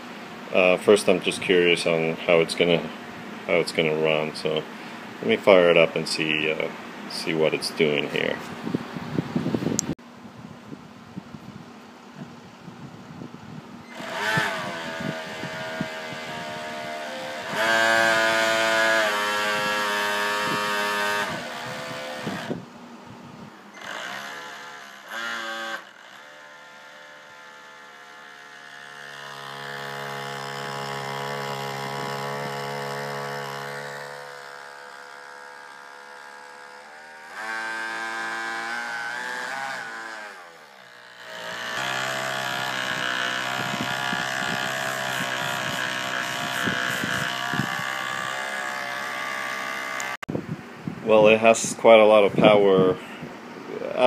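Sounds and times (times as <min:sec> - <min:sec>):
small electric motor whine: 0:13.8 - 0:22.7, 0:23.6 - 0:50.2.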